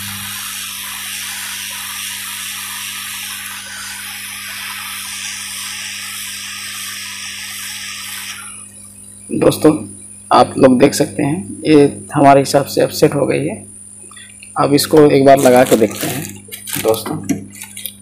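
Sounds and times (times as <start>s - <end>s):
hot air gun blowing: 0.0s - 8.8s, 15.3s - 17.0s
low electrical hum: 0.0s - 18.0s.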